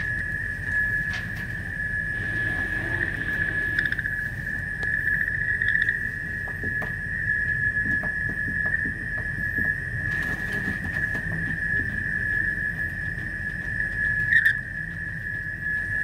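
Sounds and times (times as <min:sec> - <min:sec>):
low hum: 0:00.0 - 0:16.0
high-pitched electronic tone: 0:02.0 - 0:04.6.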